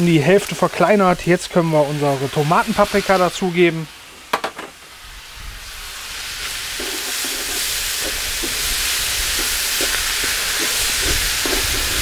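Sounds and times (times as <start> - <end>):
vegetables sizzling in a pan: 0.0 - 12.0
wooden spatula scraping a pan: 6.7 - 8.7.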